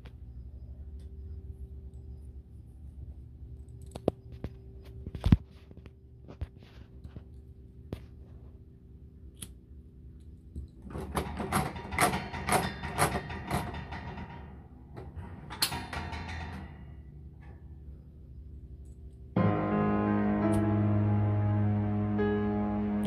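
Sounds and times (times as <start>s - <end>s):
metal wire guard rattling: 10.8s - 18.0s.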